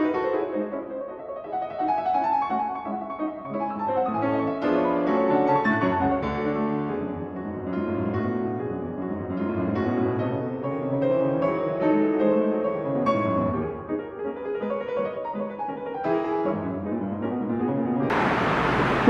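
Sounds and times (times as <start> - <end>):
keyboard melody music: 0.0 - 17.5.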